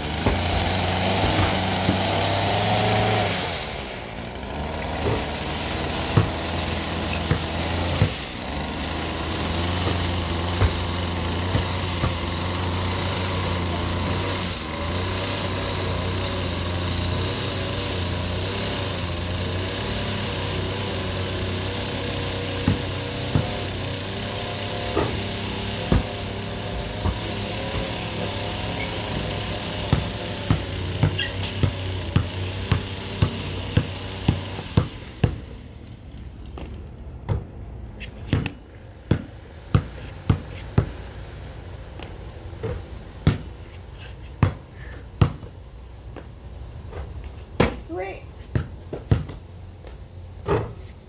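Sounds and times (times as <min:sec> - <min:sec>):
basketball bouncing on concrete: 0:00.0 - 0:03.3, 0:04.7 - 0:14.3, 0:21.9 - 0:41.2, 0:41.9 - 0:51.0
lawn mower engine running: 0:00.0 - 0:37.8.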